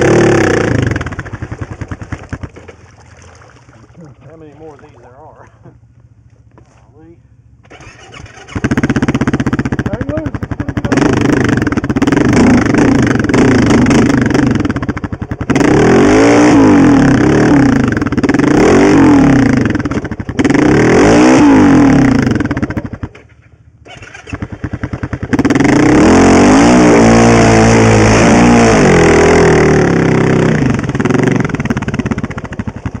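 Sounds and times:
quad bike engine revving: 0.0s - 2.8s, 7.6s - 33.0s.

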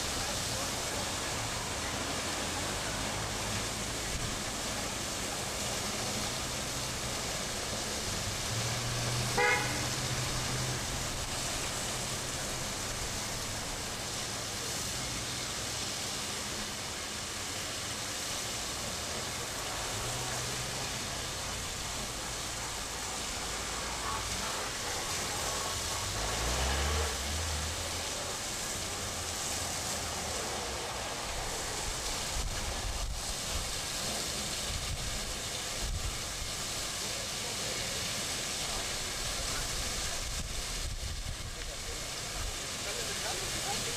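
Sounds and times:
vehicle engine humming: 0.0s - 15.0s, 19.5s - 33.5s
street traffic: 0.0s - 43.9s
water jet rushing: 0.0s - 43.9s
short horn toot: 9.4s - 9.9s.

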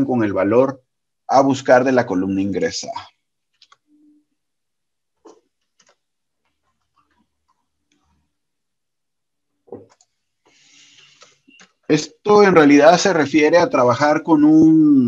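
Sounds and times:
keyboard and mouse clicks: 3.5s - 3.9s, 5.2s - 8.2s, 9.7s - 11.9s.

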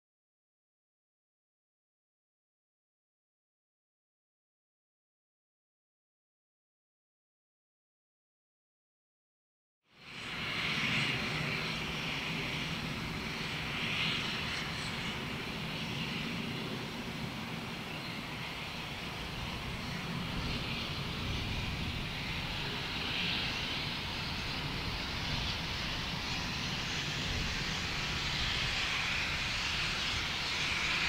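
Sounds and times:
steam locomotive roaring steam: 9.9s - 31.0s.

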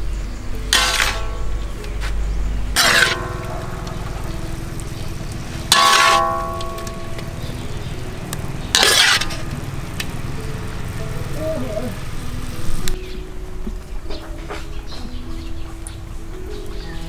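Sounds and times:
steady low rumble: 0.0s - 17.0s
metal spatula scraping a wok: 0.7s - 1.6s, 2.7s - 7.3s, 8.7s - 9.7s.

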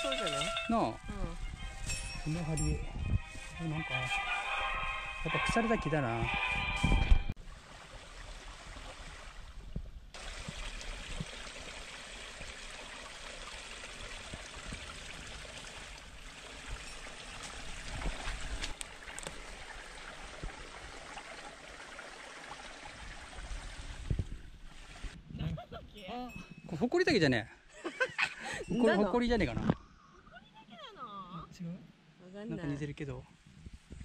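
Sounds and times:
stream running over rocks: 7.4s - 25.2s.

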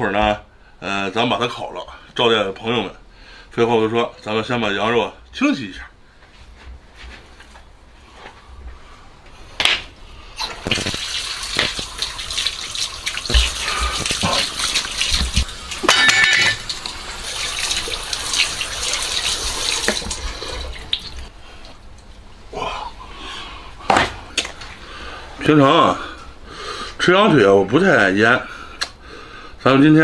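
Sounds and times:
tap water running into sink: 10.4s - 21.3s.

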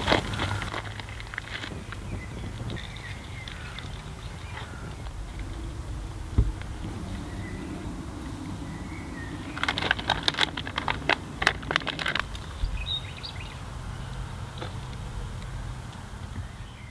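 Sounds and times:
low outdoor rumble: 0.0s - 16.9s
sharp crackling clicks: 9.4s - 12.8s.

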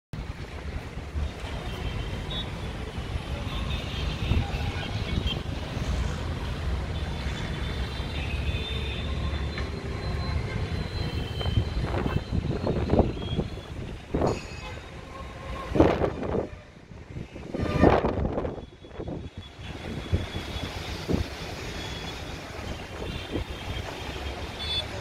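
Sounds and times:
distant road traffic: 0.2s - 25.0s
wind on microphone: 15.5s - 21.4s.

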